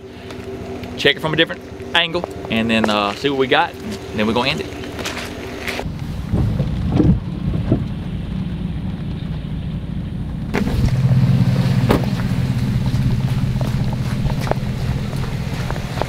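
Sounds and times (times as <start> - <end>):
tyre noise on dirt track: 0.0 - 16.0
vehicle engine running: 0.0 - 16.0.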